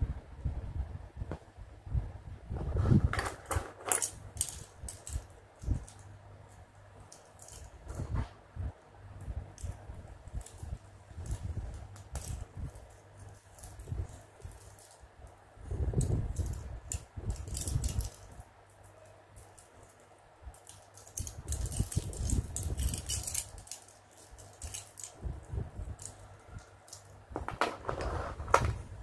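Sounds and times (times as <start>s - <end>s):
plastic beads clicking and rattling: 3.2s - 7.9s, 9.5s - 27.2s.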